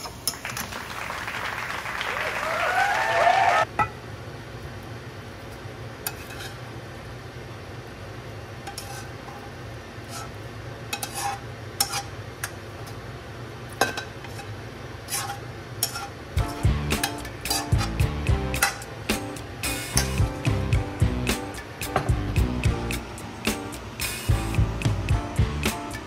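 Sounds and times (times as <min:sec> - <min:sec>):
spatula scraping pan: 0:06.1 - 0:06.6, 0:08.7 - 0:12.2, 0:14.2 - 0:18.9
steady low hum: 0:15.6 - 0:26.0.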